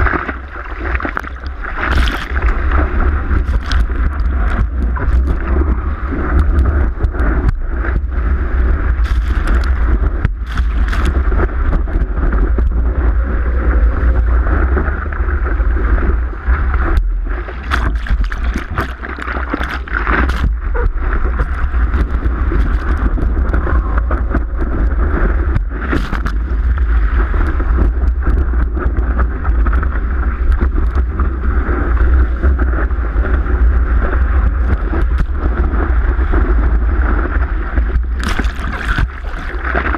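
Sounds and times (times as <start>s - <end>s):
sharp knocks and splashes: 0.0s - 8.1s, 8.9s - 12.8s, 16.9s - 24.7s, 25.3s - 29.9s, 37.8s - 39.9s
heavy low rumble: 0.0s - 39.9s
muffled rush of water: 0.0s - 39.9s
wind buffeting camera: 0.0s - 39.9s.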